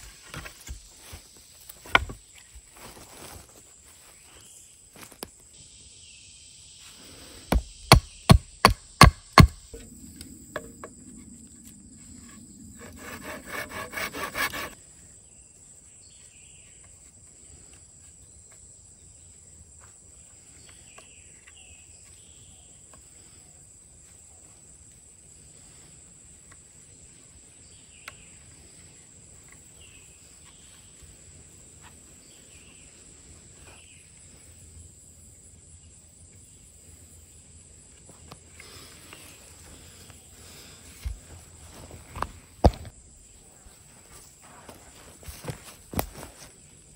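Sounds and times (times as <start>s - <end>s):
hatchet knocking on wood: 7.5s - 9.6s
fast rasping strokes: 12.8s - 14.8s.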